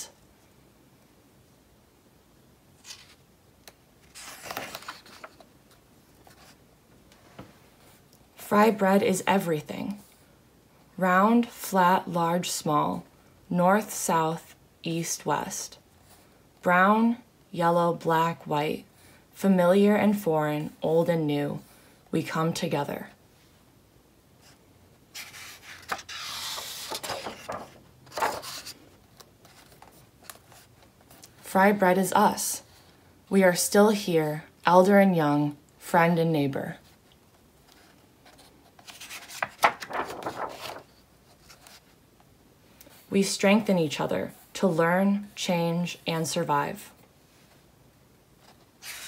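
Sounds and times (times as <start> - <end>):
book page turning: 2.8 - 6.6, 24.4 - 31.4, 37.6 - 42.0, 48.4 - 49.0.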